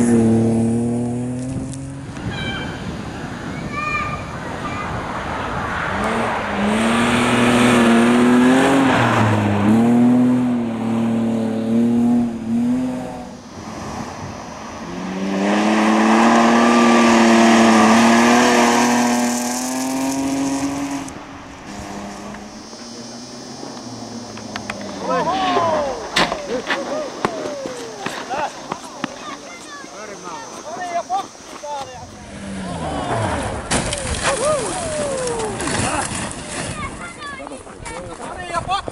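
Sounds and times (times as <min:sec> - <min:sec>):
rally car engine at high revs: 0:00.0 - 0:02.2, 0:04.8 - 0:29.4, 0:30.0 - 0:34.3.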